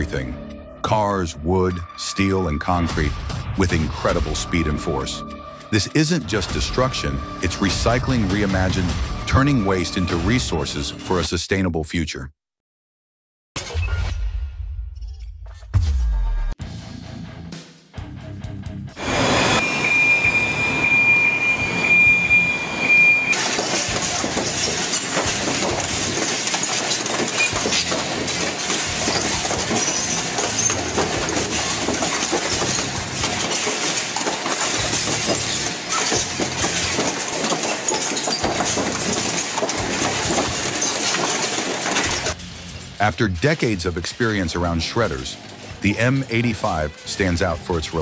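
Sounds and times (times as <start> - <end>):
metal shredder whine: 19.0 - 43.0
metal shredder grinding sheet metal: 19.0 - 47.9.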